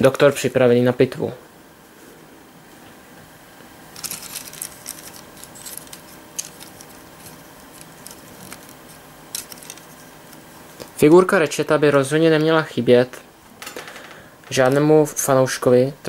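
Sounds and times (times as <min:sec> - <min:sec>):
plastic toy clicking and rattling: 0:04.0 - 0:09.9.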